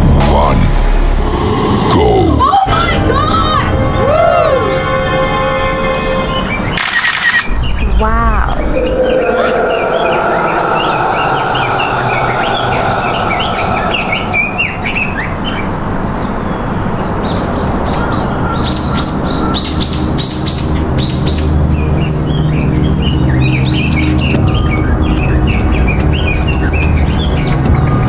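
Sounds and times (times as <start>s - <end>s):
birds chirping: 5.9s - 28.0s.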